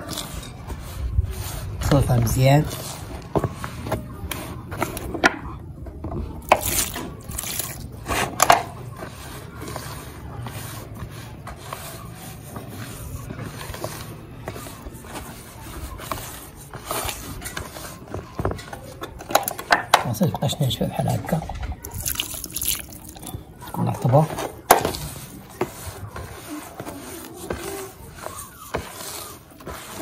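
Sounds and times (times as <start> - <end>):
bran scraping in plastic basin: 6.0 - 30.0.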